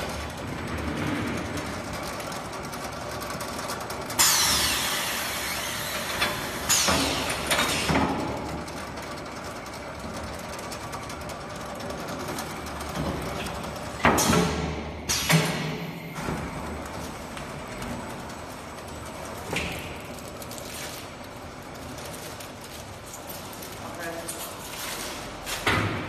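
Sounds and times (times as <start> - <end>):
conveyor machine hum: 0.0 - 26.0
pneumatic air hiss: 4.2 - 8.0.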